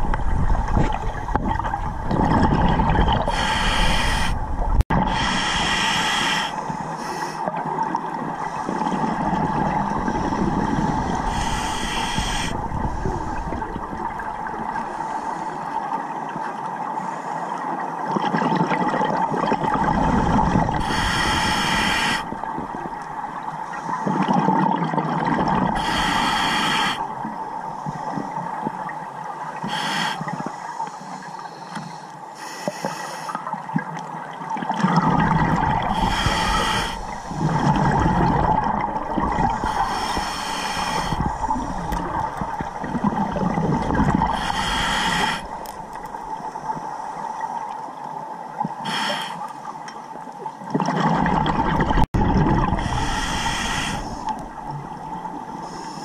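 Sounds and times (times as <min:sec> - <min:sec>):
regulator hissing inhalation: 0:03.3 - 0:04.4, 0:05.1 - 0:07.5, 0:11.2 - 0:12.6, 0:20.8 - 0:22.3, 0:25.8 - 0:27.1, 0:29.7 - 0:30.2, 0:35.9 - 0:37.6, 0:39.6 - 0:41.7, 0:44.3 - 0:45.7, 0:48.9 - 0:49.4, 0:52.8 - 0:54.4
bubbling exhalations: 0:34.8 - 0:46.0, 0:50.8 - 0:55.0.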